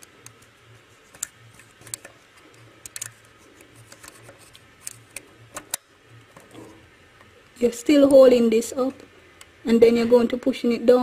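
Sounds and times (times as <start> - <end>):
faint low hum: 0.0 - 11.0.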